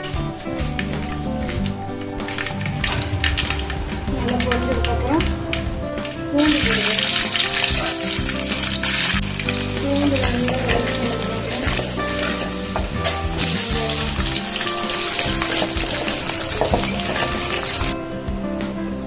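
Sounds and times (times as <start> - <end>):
background music: 0.0 - 19.0
garlic sizzling in hot oil: 6.4 - 18.0.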